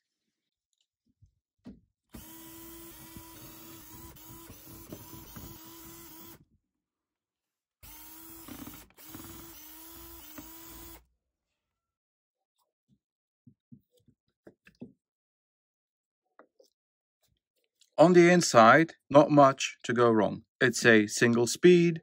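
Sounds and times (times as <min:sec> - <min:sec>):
cordless drill running: 0:02.1 - 0:06.4, 0:07.8 - 0:11.1.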